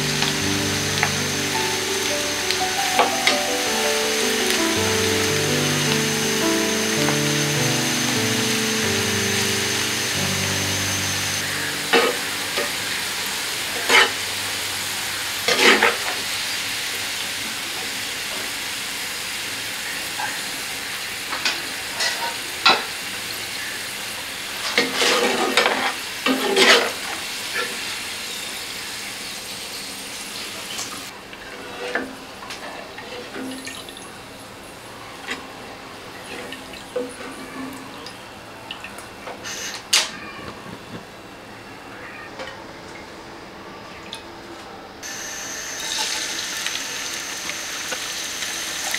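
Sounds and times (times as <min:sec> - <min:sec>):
onions sizzling in hot oil: 0:00.0 - 0:30.9, 0:45.0 - 0:48.9
skimmer scraping a pan: 0:11.3 - 0:14.4.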